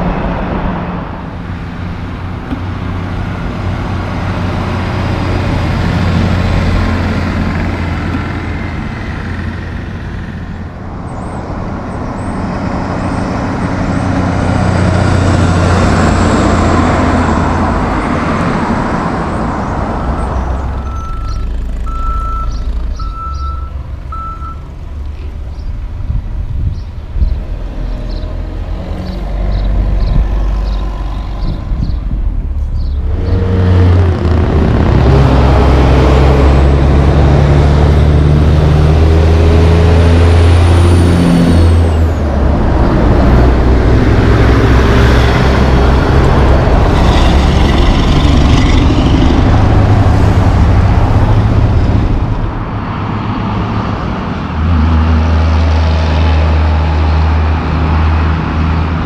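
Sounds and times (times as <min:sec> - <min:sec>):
diesel trucks driving past: 0:00.0 - 0:59.0
tyre and road noise: 0:00.0 - 0:59.0
reversing alarm beeping: 0:20.8 - 0:24.7.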